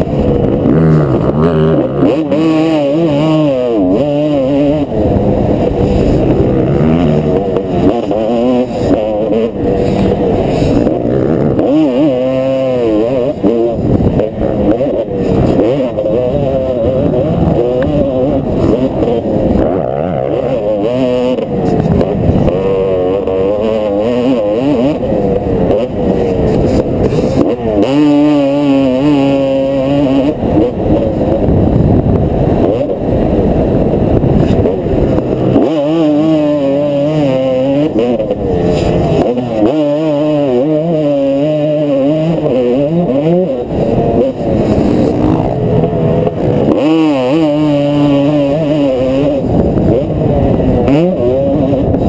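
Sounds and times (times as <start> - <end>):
dirt bike engine revving: 0.0 - 52.0.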